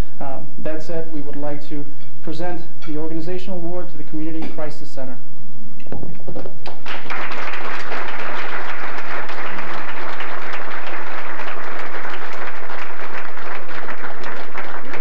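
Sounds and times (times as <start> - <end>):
audience applauding: 6.7 - 15.0.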